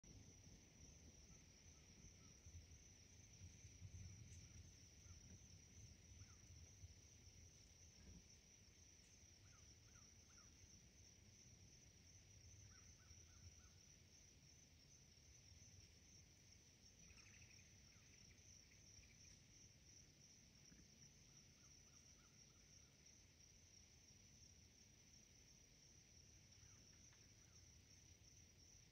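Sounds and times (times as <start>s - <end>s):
faint bird chirps: 6.1s - 6.5s, 12.6s - 13.8s, 17.0s - 19.5s.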